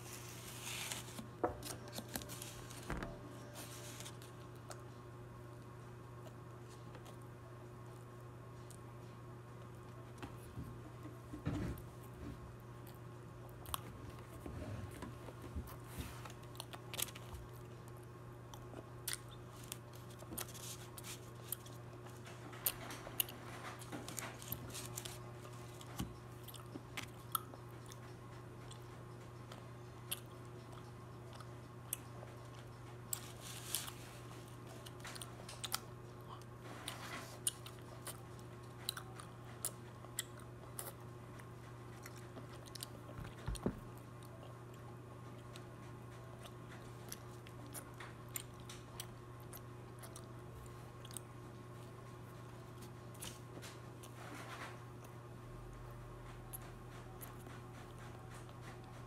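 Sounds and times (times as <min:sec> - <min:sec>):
low background hum: 0:00.0 - 0:59.0
child chewing with wet smacks: 0:15.0 - 0:54.2, 0:55.8 - 0:59.0.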